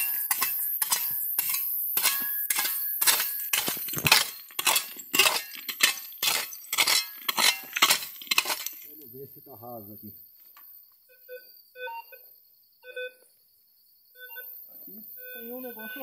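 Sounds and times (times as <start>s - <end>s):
shovel chopping into stony soil: 0.0s - 8.9s.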